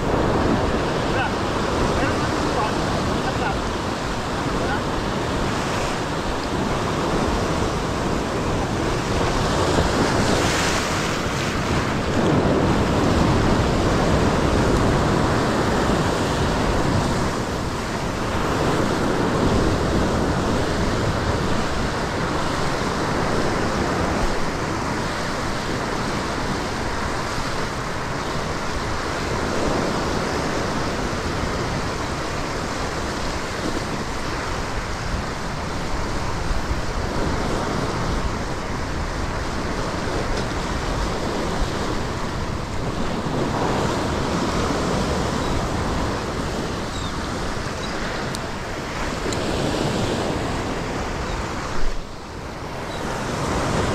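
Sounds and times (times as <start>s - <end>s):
ocean surf breaking on rocks: 0.0s - 53.9s
wind buffeting microphone: 0.0s - 53.9s.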